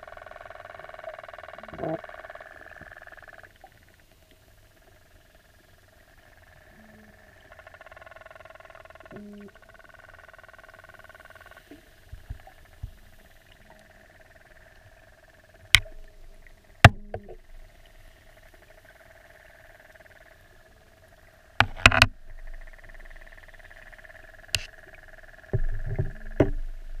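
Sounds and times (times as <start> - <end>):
clicks and knocks on camera housing: 16.9 - 17.4, 21.6 - 22.2.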